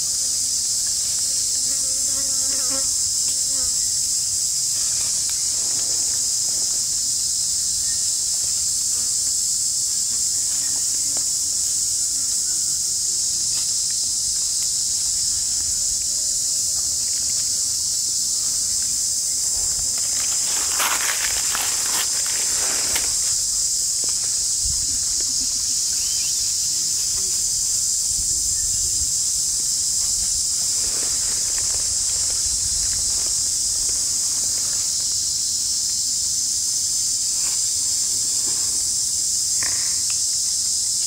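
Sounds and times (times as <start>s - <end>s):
insect chorus drone: 0.0s - 41.0s
rustling in dry leaves: 13.8s - 25.9s, 27.4s - 35.2s.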